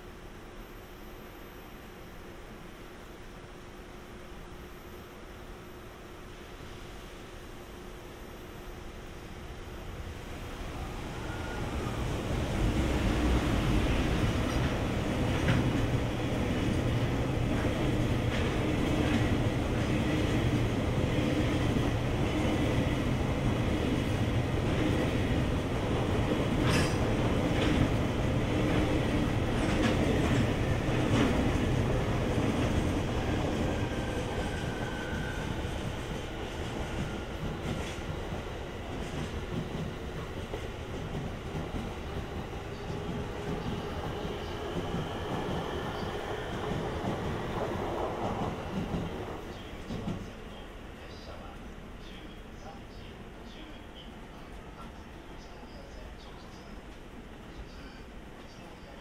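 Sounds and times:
freight train rumbling past: 8.9s - 59.0s.

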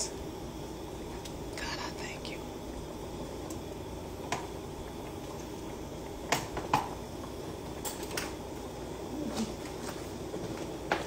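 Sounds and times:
sauce simmering in a skillet: 2.4s - 11.0s.

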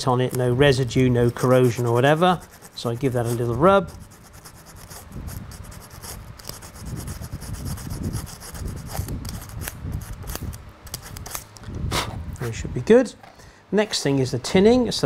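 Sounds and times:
emery rubbing on steel rail: 1.1s - 10.3s.

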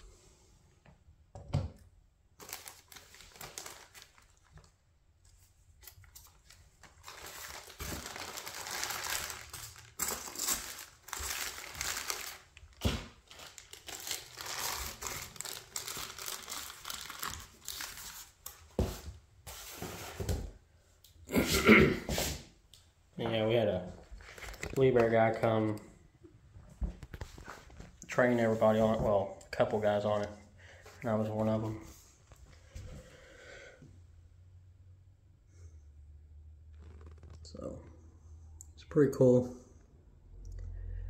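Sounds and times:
packaging crinkling: 2.4s - 4.8s, 5.8s - 18.6s, 23.9s - 25.5s.

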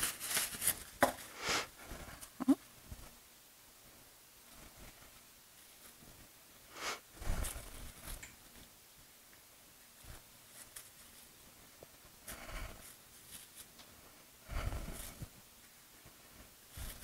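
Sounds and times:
rustles and light knocks: 0.0s - 1.3s, 7.2s - 14.0s, 14.7s - 17.0s.

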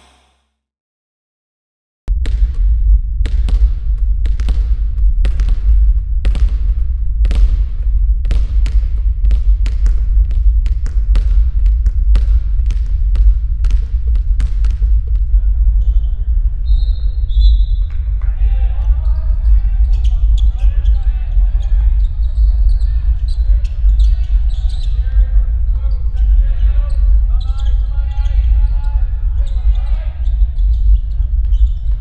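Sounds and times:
basketball bouncing on gym floor: 2.1s - 15.9s
low rumble: 2.1s - 32.0s.

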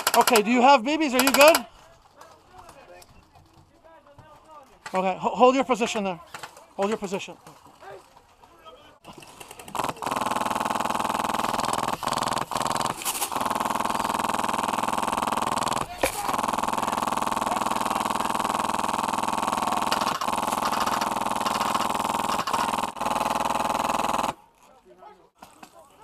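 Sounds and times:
airsoft rifle firing full auto: 0.0s - 1.7s, 9.6s - 24.4s.

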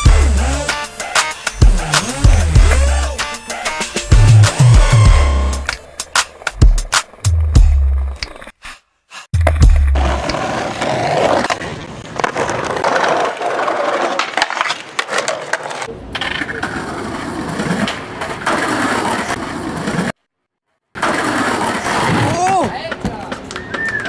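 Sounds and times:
skateboard rolling over paving: 9.8s - 20.2s, 21.0s - 24.0s.

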